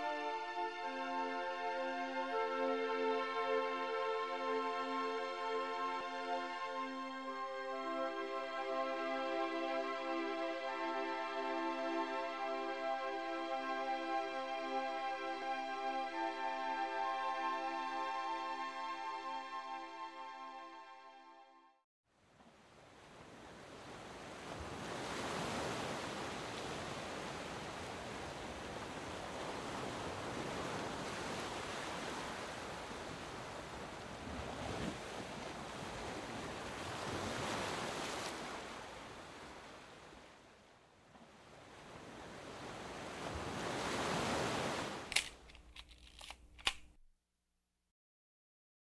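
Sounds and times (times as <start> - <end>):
sharp clicks: 45.1 - 47.0.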